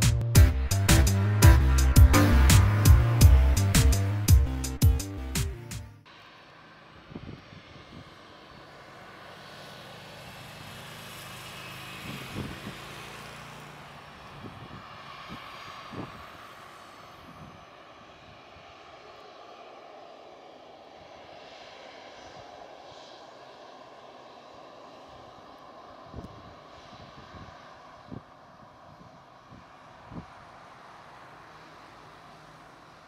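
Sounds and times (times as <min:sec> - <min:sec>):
short low thumps: 0:00.0 - 0:06.0
cars passing: 0:00.0 - 0:33.0
distant jet engines: 0:06.0 - 0:33.0.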